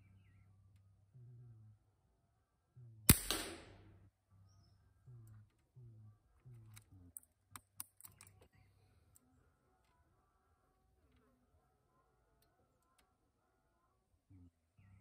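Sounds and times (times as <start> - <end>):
metallic clicks of rifle cocking: 3.1 - 3.8, 6.6 - 8.5
air rifle shot: 3.1 - 3.9.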